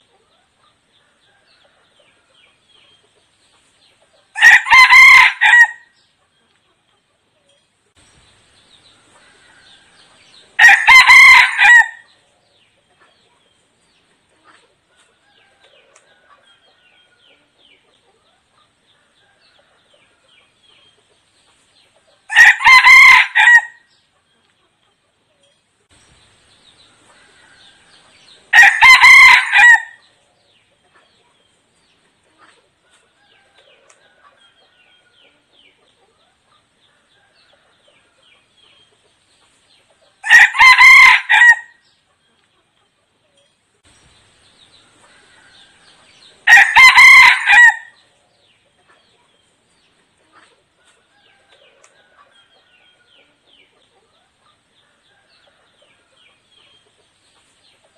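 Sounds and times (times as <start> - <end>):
rooster crowing: 4.4 - 5.9, 9.2 - 12.1, 22.3 - 23.8, 27.2 - 30.0, 40.2 - 41.8, 45.2 - 48.0.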